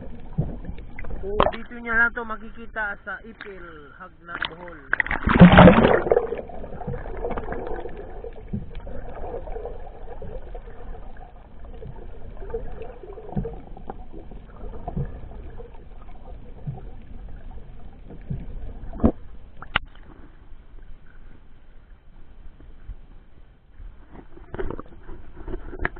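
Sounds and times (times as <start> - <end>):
bubbling: 0.0 - 2.2, 4.2 - 19.9
underwater rumble: 0.0 - 25.9.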